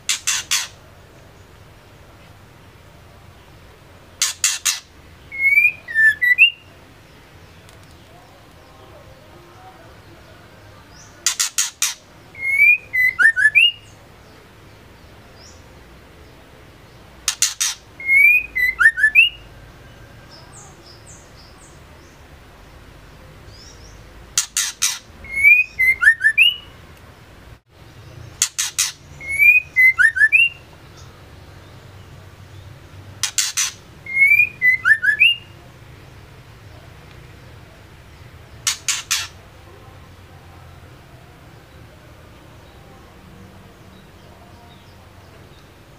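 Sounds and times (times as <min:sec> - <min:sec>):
bird clicks and chirping whistles: 0:00.1 - 0:00.8, 0:17.3 - 0:19.4, 0:33.2 - 0:35.4.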